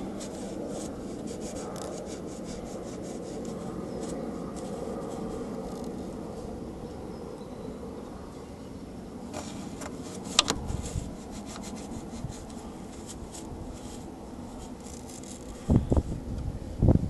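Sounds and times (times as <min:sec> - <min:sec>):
foam swab scrubbing a grille: 0:00.0 - 0:05.9, 0:09.4 - 0:15.6.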